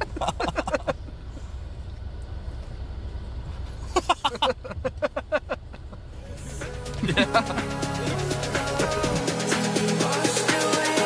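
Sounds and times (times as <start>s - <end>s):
vehicle engine low rumble: 0.0s - 9.2s
voices: 6.2s - 11.0s.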